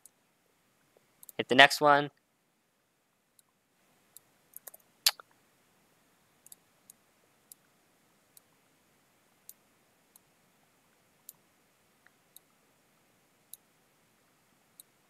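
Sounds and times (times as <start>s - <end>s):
faint steady hiss: 0.0s - 15.0s
computer mouse clicking: 4.1s - 4.9s, 6.4s - 7.7s, 11.2s - 11.4s, 13.5s - 13.7s.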